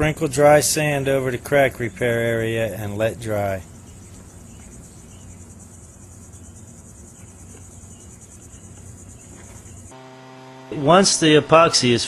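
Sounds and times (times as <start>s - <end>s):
high-pitched insect chirring: 3.3s - 10.0s
low hum: 3.6s - 12.0s.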